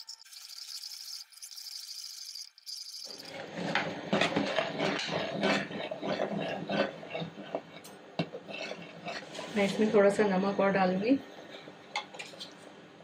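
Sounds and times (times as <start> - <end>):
metal spoon scraping a pot: 3.0 - 10.0.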